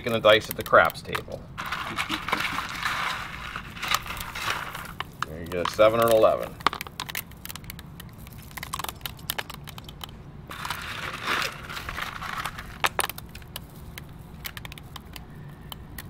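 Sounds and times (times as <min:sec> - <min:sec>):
rustling scrape: 0:01.6 - 0:05.2, 0:10.5 - 0:13.0.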